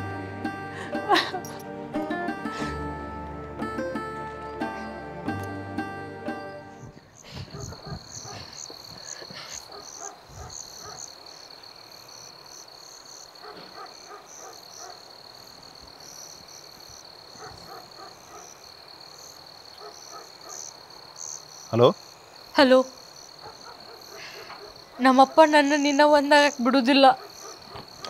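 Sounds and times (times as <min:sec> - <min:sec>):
high insect trill: 0:06.4 - 0:28.0
insect chirps: 0:06.7 - 0:28.0.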